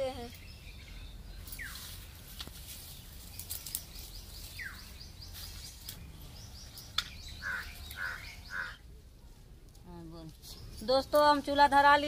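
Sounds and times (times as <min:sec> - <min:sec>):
dry twigs clicking and rustling: 0:01.4 - 0:06.1, 0:06.7 - 0:08.2, 0:09.3 - 0:12.0.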